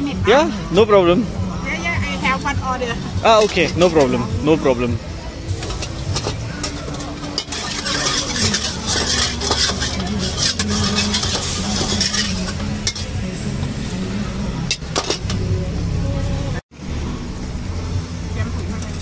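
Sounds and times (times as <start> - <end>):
metal ladle scraping wok: 2.2 - 15.5
oil sizzling: 2.2 - 15.5.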